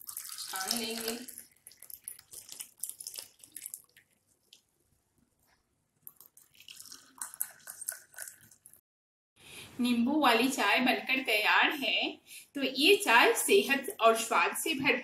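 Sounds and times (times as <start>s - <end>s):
tea pouring into glass: 0.0s - 4.1s, 6.1s - 8.8s.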